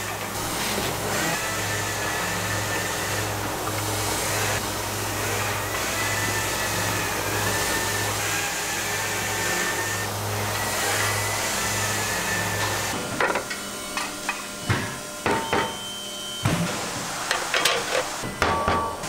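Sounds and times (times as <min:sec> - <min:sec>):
factory machine hum: 0:00.0 - 0:19.0
aluminum pans clanking: 0:17.3 - 0:19.0.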